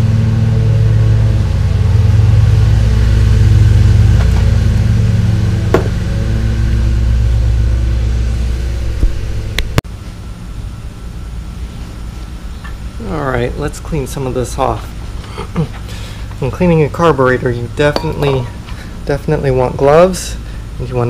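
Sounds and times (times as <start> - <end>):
low mechanical hum: 0.0 - 21.0
sharp knock: 5.7 - 6.0.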